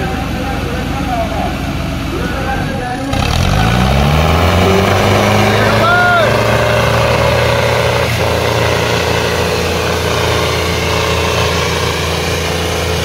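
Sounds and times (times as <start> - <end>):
tractor diesel engines under load: 0.0 - 13.0.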